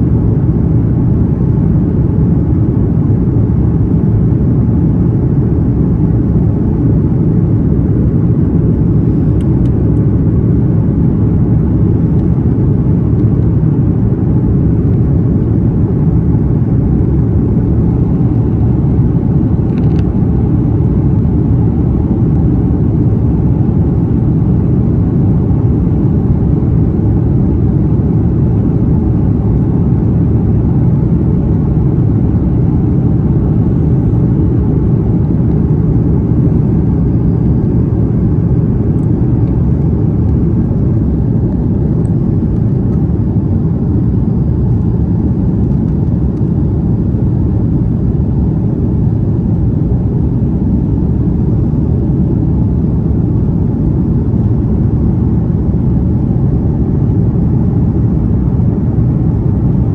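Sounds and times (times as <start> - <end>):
aircraft cabin engine rumble: 0.0 - 59.9.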